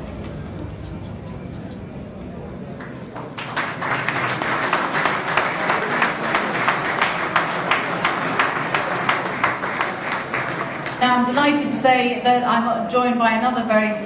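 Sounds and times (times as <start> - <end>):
audience applauding: 2.6 - 11.5.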